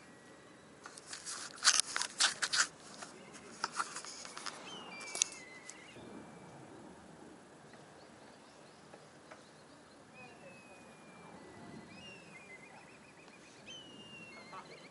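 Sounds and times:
sharp crackling clicks: 0:00.8 - 0:05.9
falling whistled bird call: 0:04.3 - 0:06.5, 0:10.1 - 0:14.9.

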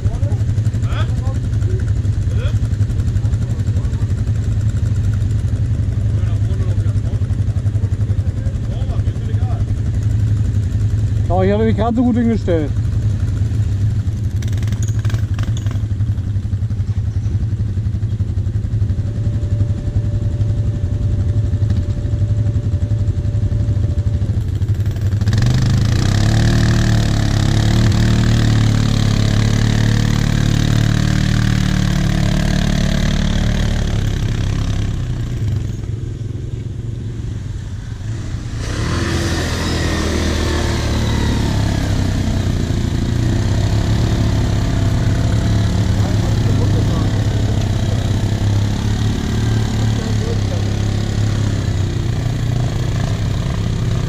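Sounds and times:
quad bike engine idling: 0:00.0 - 0:54.0
quad bike engines revving: 0:00.0 - 0:54.0.

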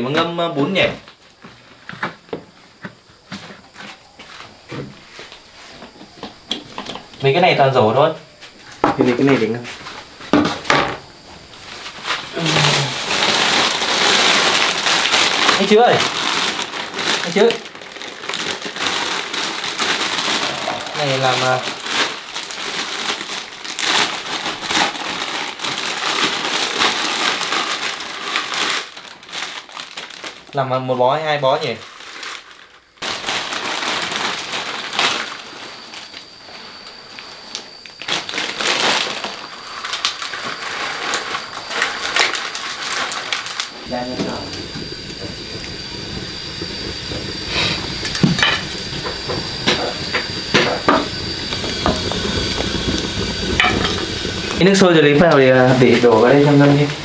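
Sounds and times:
kettle hissing with high whine: 0:00.0 - 0:57.0
fire burning: 0:08.6 - 0:57.0
plastic wrapping crinkling: 0:11.6 - 0:57.0
firewood sticks knocking: 0:47.6 - 0:54.1.

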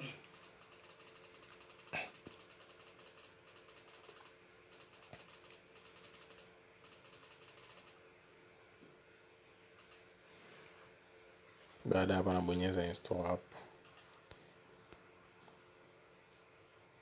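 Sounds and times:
faint rapid ticking: 0:00.0 - 0:08.0, 0:09.8 - 0:10.0, 0:13.0 - 0:14.3
faint steady tone: 0:00.0 - 0:17.0.

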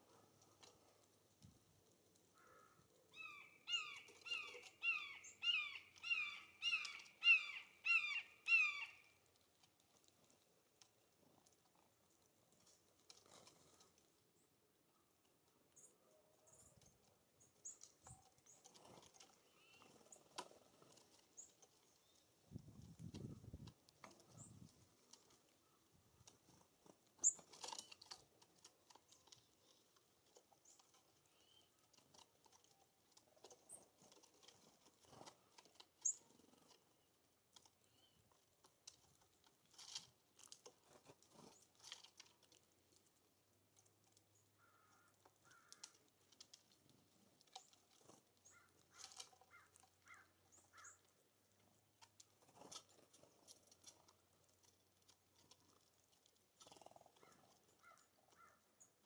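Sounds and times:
birds pecking seed: 0:00.0 - 0:59.0
high bird chirps: 0:03.1 - 0:09.0.

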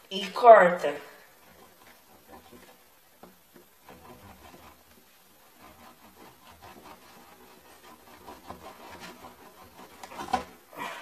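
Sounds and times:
knife scraping wax candle: 0:03.7 - 0:10.7.

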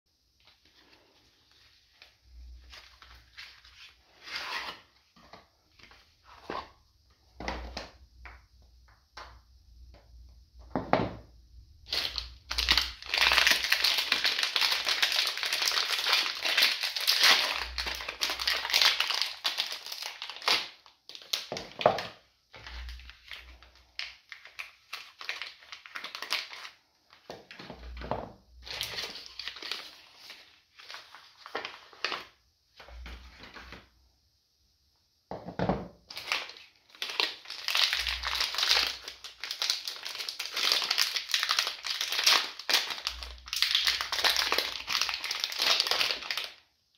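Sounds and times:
dense wrapping crinkling: 0:11.9 - 0:21.8, 0:36.1 - 0:46.6.

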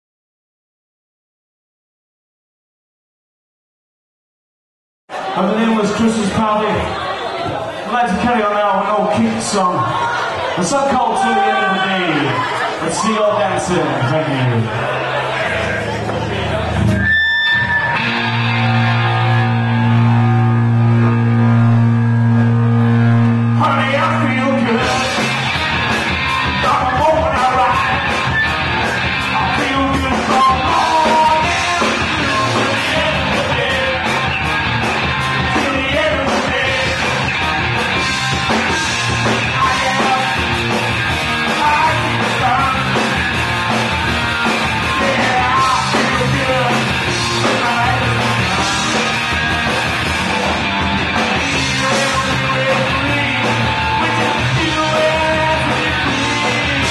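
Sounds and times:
live rock band playing: 0:14.8 - 0:56.9
person singing: 0:29.4 - 0:34.3, 0:35.4 - 0:37.2, 0:39.5 - 0:40.6, 0:41.4 - 0:43.1, 0:44.4 - 0:49.2, 0:51.4 - 0:56.9.

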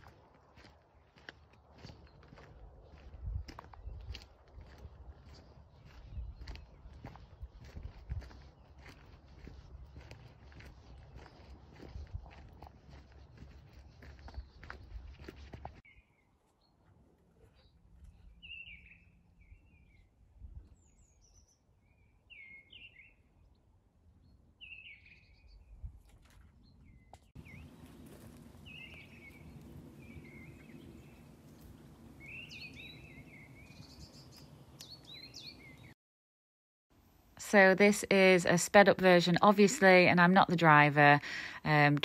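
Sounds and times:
small birds chirping: 0:01.1 - 0:16.8, 0:17.4 - 0:23.3, 0:24.2 - 0:25.9, 0:26.6 - 0:36.0.

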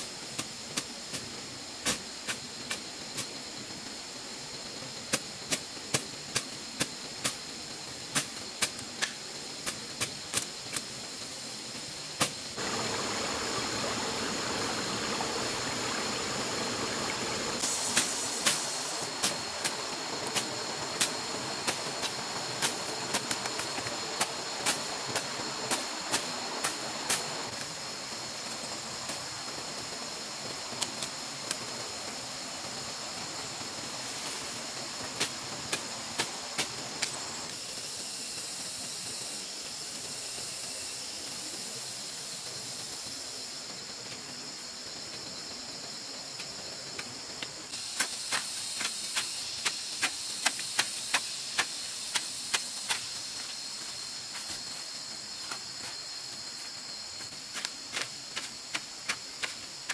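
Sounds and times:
steady high hiss: 0:00.0 - 0:59.9
hoe striking wet soil: 0:17.6 - 0:27.6, 0:47.8 - 0:53.6, 0:57.5 - 0:59.9.

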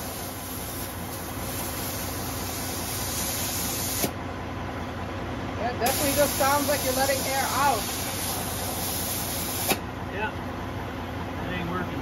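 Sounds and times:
air hissing from tire valve: 0:00.0 - 0:04.2, 0:05.8 - 0:09.9.

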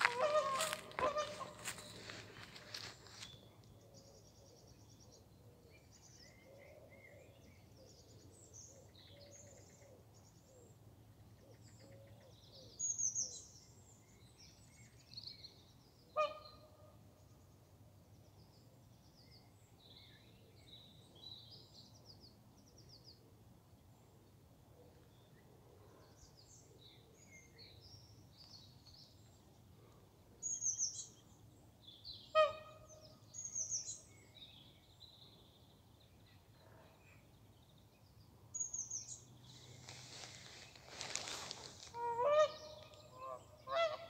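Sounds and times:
small birds chirping and trilling: 0:37.2 - 0:41.9.

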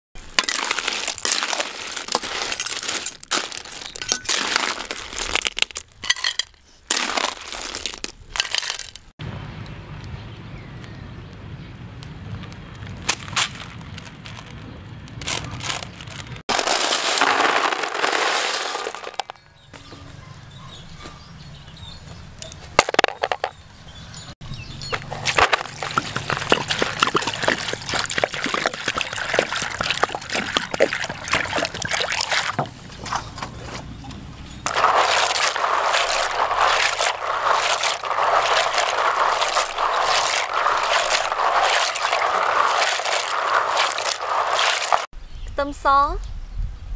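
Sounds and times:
water pouring: 0:00.2 - 0:05.4, 0:16.5 - 0:19.3, 0:25.0 - 0:32.7, 0:34.7 - 0:45.1
clam shells clattering in metal wok: 0:00.3 - 0:09.1, 0:16.5 - 0:19.4
shells clinking in a basin: 0:00.3 - 0:09.1, 0:16.5 - 0:19.4, 0:34.7 - 0:45.1.

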